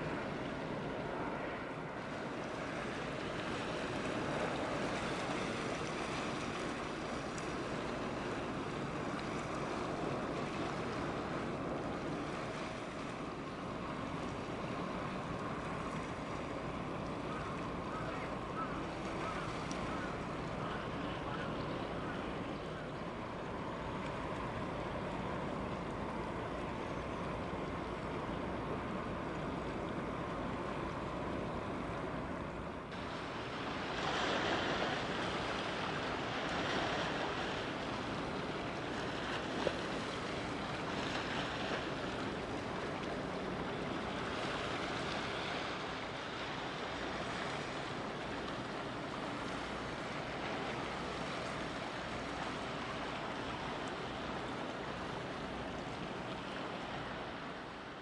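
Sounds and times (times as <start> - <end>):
waves washing: 0.0 - 58.0.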